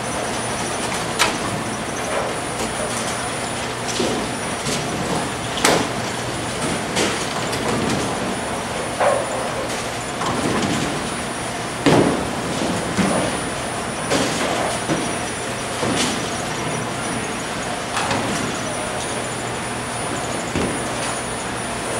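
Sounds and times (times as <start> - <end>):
bowling balls rolling rumble: 0.0 - 21.9
bowling pins knocking and clattering: 3.9 - 11.2, 11.8 - 18.8.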